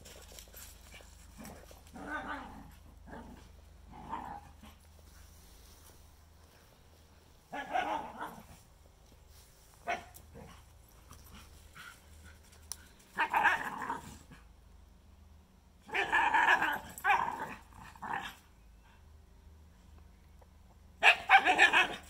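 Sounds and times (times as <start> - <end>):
dog growling and barking in play: 0.2 - 5.0, 7.5 - 8.7, 9.8 - 12.4, 13.1 - 14.5, 15.8 - 18.5, 21.0 - 22.0.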